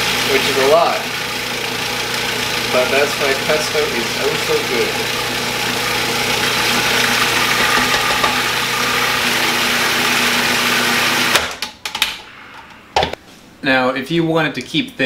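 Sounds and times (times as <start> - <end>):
food processor motor running: 0.0 - 11.5.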